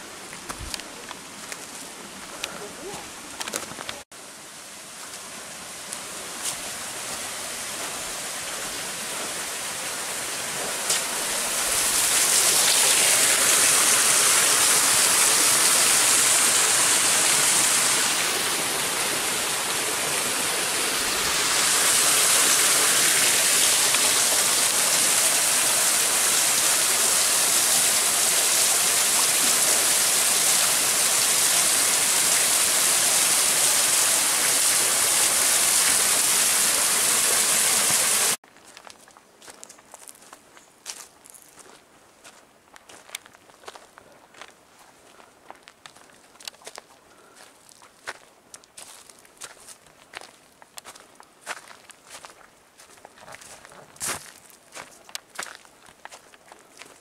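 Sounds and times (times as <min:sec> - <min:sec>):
waterfall rushing over rocks: 0:04.5 - 0:38.4.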